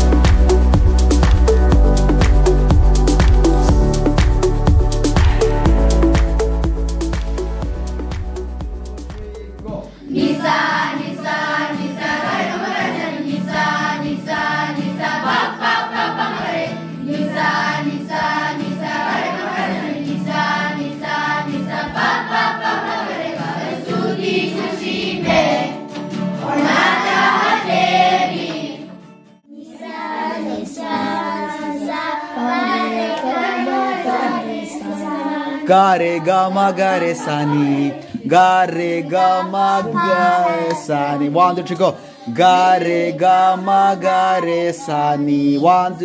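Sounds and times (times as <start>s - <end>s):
instrumental accompaniment: 0.0s - 29.5s
children's choir singing: 3.4s - 8.1s, 9.0s - 46.0s.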